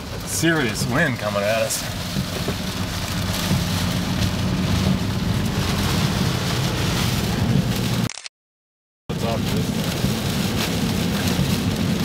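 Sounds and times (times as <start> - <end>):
heavy rain on car windshield: 0.0 - 8.1, 9.1 - 12.0
low rumble: 1.8 - 8.1.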